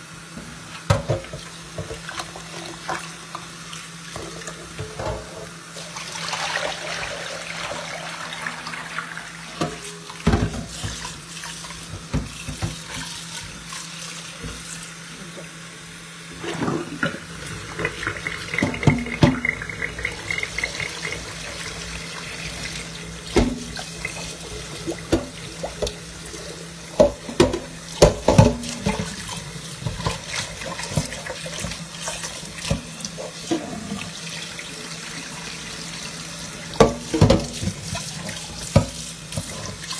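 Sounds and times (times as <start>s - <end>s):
tap running into metal sink: 16.5s - 21.6s, 22.6s - 26.0s, 26.9s - 29.2s, 36.8s - 39.8s.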